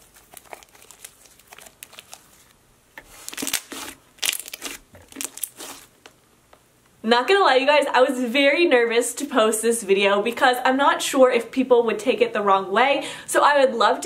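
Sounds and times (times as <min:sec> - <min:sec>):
slime crackling and popping: 0:03.1 - 0:06.1.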